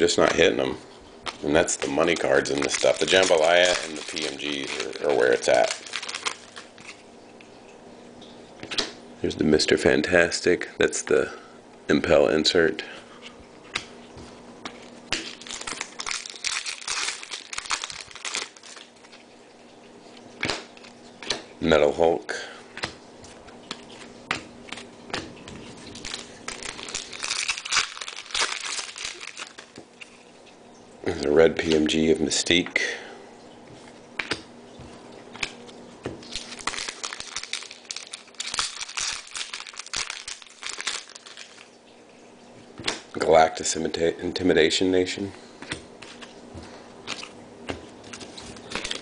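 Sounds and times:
wrapper crinkling and tearing: 1.3 - 7.1, 15.2 - 19.3, 25.7 - 30.2, 36.2 - 41.8, 48.0 - 49.0.

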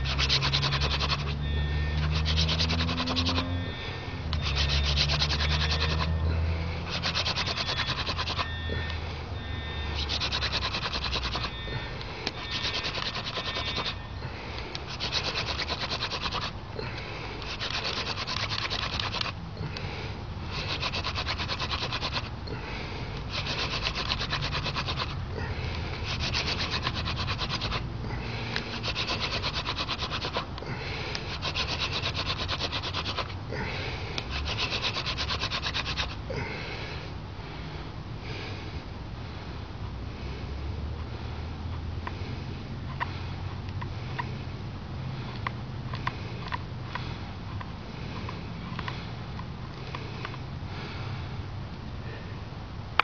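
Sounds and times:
wooden spindle rasping on board: 0.0 - 9.0, 9.6 - 14.0, 14.7 - 19.4, 20.4 - 22.3, 23.2 - 25.2, 25.8 - 27.9, 28.5 - 33.4, 34.2 - 36.2.

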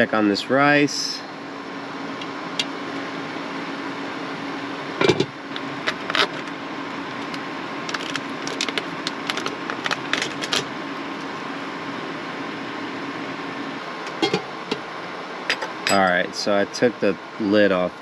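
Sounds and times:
steady low hum: 0.0 - 18.0
plastic pouch crinkling: 7.8 - 10.7.

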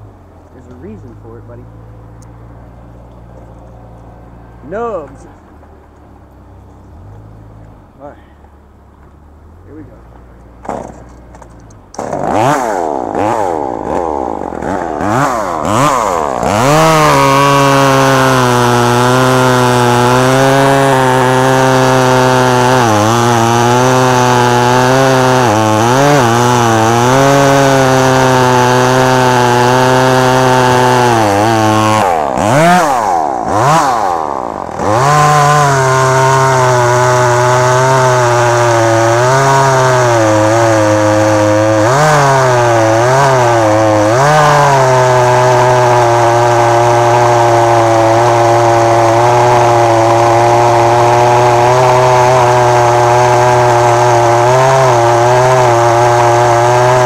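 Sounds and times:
chainsaw engine revving and idling: 0.6 - 2.4, 10.6 - 57.0.

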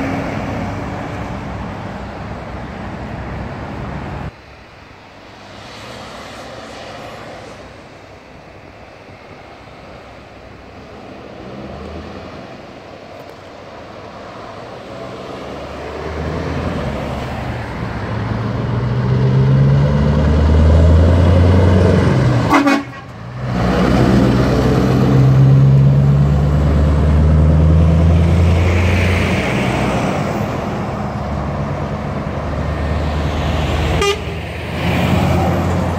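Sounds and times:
truck engine pulling hard: 14.4 - 35.9.

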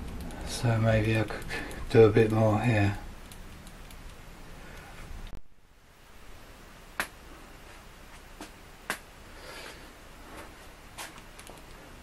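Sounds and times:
sharp clicks: 0.0 - 2.5, 3.2 - 4.2.

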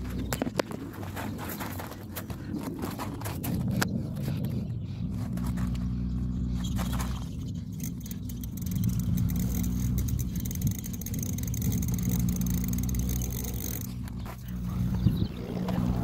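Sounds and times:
low hum: 0.0 - 16.0
bicycle freewheel ticking: 6.6 - 14.2.

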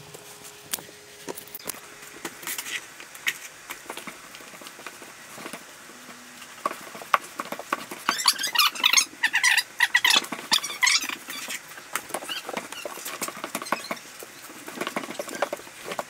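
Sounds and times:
float squeaking on tile: 7.8 - 16.0.

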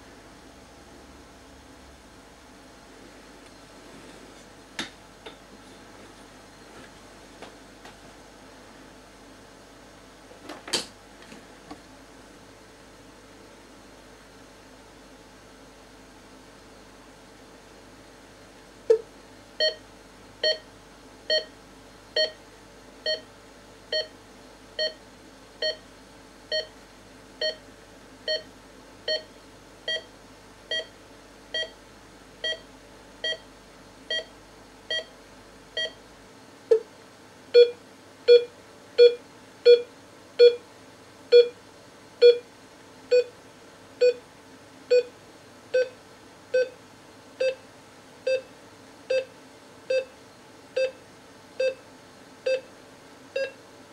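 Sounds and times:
patient monitor pulse beeps: 19.6 - 19.8, 20.4 - 20.7, 21.3 - 21.5, 22.2 - 22.4, 23.0 - 23.3, 23.9 - 24.1, 24.8 - 25.0, 25.6 - 25.8, 26.5 - 26.7, 27.4 - 27.6, 28.3 - 28.5, 29.1 - 29.3, 29.9 - 30.1, 30.7 - 31.8, 32.4 - 33.5, 34.1 - 34.3, 34.9 - 35.1, 35.8 - 36.0, 37.6 - 40.6, 41.3 - 41.6, 42.2 - 42.4, 43.1 - 43.3, 44.0 - 44.2, 44.9 - 45.1, 45.8 - 46.8, 47.4 - 47.6, 48.3 - 48.5, 49.1 - 49.3, 49.9 - 50.1, 50.8 - 51.0, 51.6 - 51.8, 52.4 - 52.7, 53.4 - 53.6.

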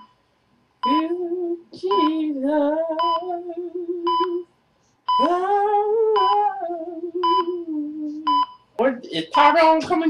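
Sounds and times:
person humming: 0.9 - 4.4, 5.2 - 8.3
heart monitor beeps: 3.0 - 3.2, 4.0 - 4.4, 6.2 - 6.5, 7.2 - 7.6, 8.2 - 8.7.

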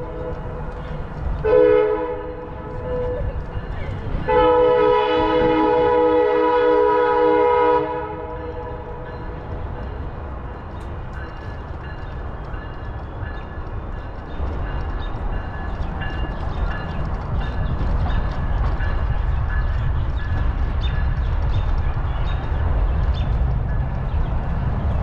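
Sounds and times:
train horn chord: 1.4 - 3.3, 4.2 - 9.0.

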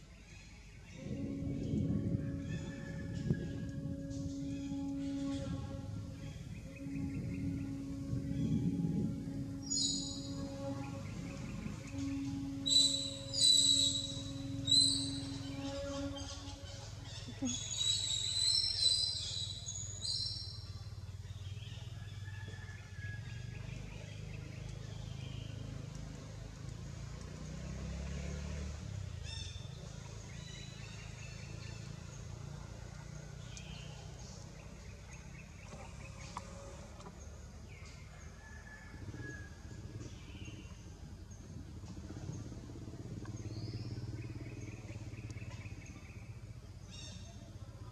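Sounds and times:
low steady rumble: 0.0 - 27.5, 28.1 - 47.9
high-pitched bird calls: 9.6 - 20.7
faint bird chirps: 9.7 - 20.9.

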